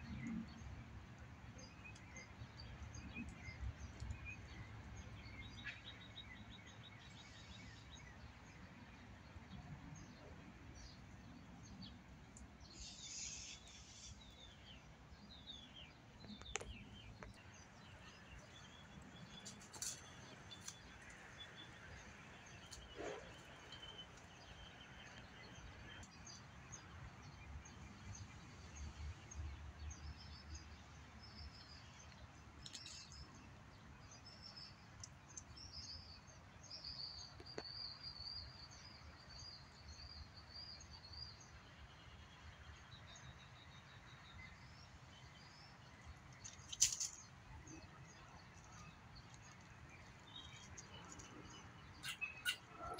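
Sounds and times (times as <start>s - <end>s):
birds chirping and calling: 52.0s - 52.9s.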